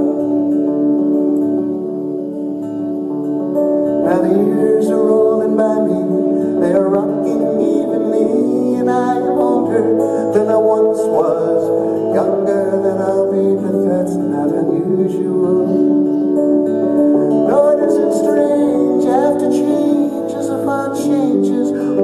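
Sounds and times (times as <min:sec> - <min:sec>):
fingerpicked acoustic guitar: 0:00.0 - 0:22.0
man singing: 0:04.0 - 0:16.4, 0:17.3 - 0:22.0.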